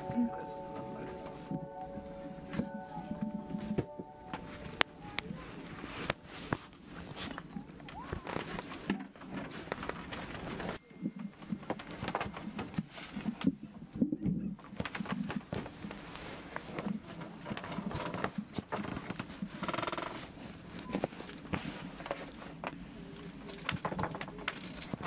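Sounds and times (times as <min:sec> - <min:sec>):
cloth and fur rustling: 0:00.0 - 0:10.8, 0:18.8 - 0:23.3.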